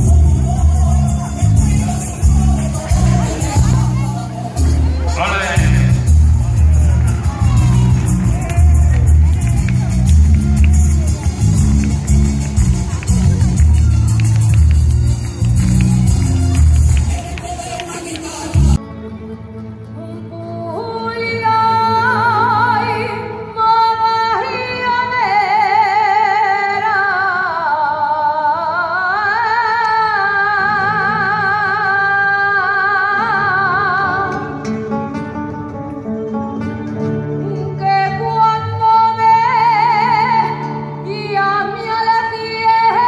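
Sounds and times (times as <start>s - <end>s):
person singing with vibrato: 0.0s - 8.4s, 16.4s - 18.8s, 19.9s - 34.8s
plucked string accompaniment: 0.0s - 25.5s, 33.2s - 43.0s.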